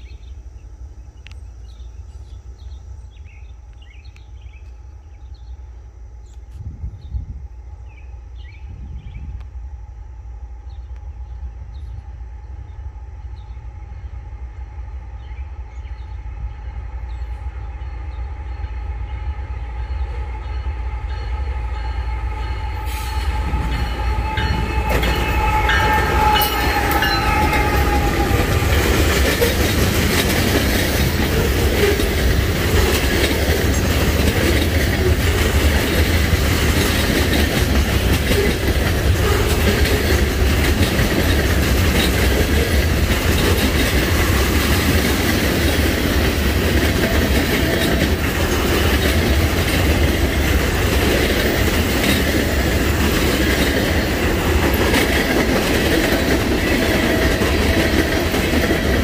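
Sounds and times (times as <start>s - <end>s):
diesel locomotives passing: 0.0s - 59.0s
train wheels rumbling on rails: 0.0s - 59.0s
ringing tone: 23.6s - 28.0s.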